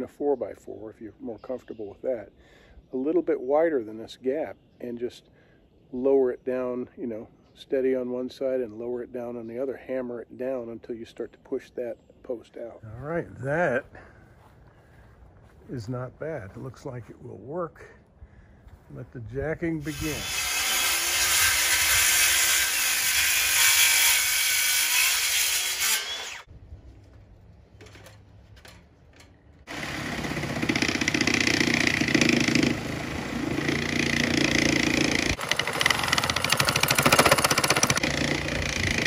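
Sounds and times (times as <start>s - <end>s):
circular saw cutting wood: 19.8s - 26.5s, 29.7s - 39.0s
reciprocating saw cutting: 19.8s - 26.5s, 29.7s - 39.0s.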